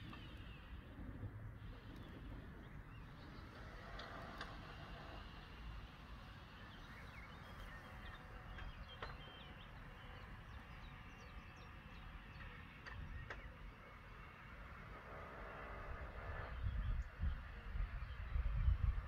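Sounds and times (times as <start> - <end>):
distant birds chirping: 0.0 - 18.9.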